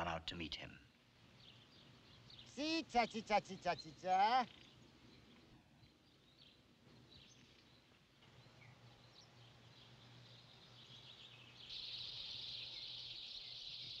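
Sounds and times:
small birds chirping: 0.0s - 14.0s.

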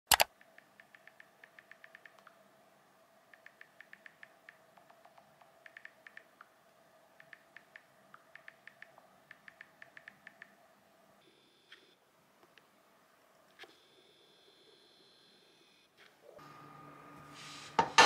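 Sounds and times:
on-screen keyboard typing clicks: 0.1s - 2.4s, 3.2s - 6.5s, 7.2s - 10.6s
faint steady hum: 0.2s - 18.0s.

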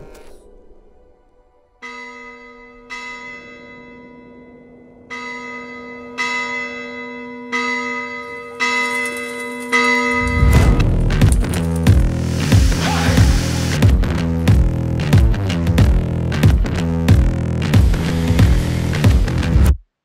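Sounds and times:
church bell tolling: 1.8s - 12.3s.

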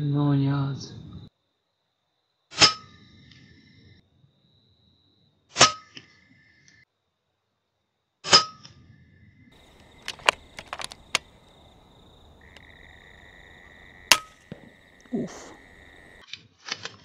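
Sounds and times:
air rifle shots: 9.6s - 16.2s
sharp clicks: 9.6s - 16.2s.

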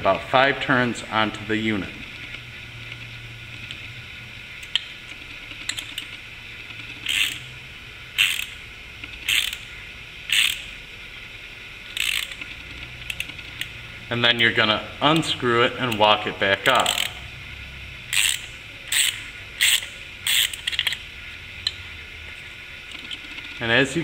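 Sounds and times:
ratchet wrench clicking: 4.6s - 7.5s, 8.2s - 9.7s, 10.3s - 10.8s, 11.9s - 14.5s, 16.6s - 17.3s, 18.1s - 21.8s.

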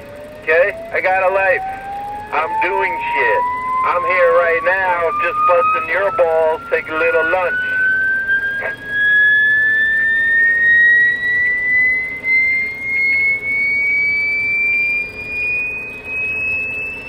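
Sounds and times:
tone rising in pitch: 0.0s - 17.0s
radio hiss: 0.4s - 7.8s, 8.5s - 8.9s.

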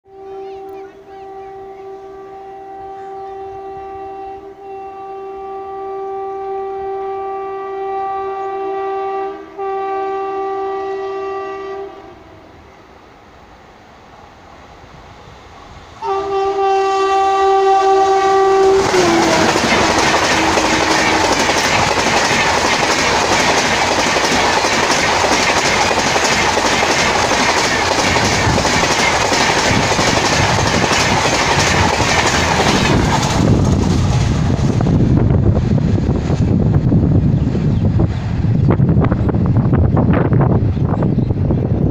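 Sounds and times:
train horn: 0.0s - 12.9s, 16.0s - 22.1s
train wheels clattering over rail joints: 18.9s - 34.8s.

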